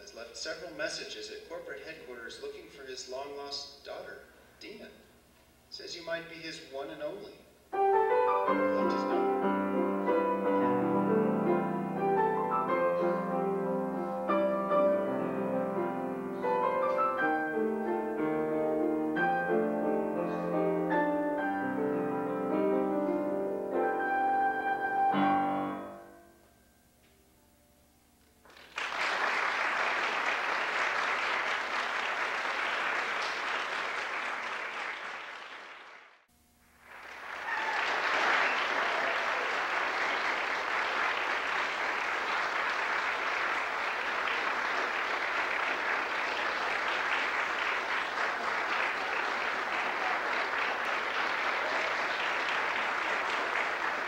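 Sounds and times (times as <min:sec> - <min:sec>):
piano notes: 0:07.7 - 0:27.8
audience applauding: 0:08.5 - 0:09.4, 0:28.4 - 0:36.2, 0:36.8 - 0:54.0.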